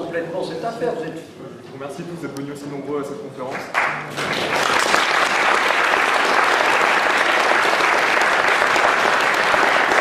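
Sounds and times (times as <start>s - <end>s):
audience applauding: 3.6s - 10.0s.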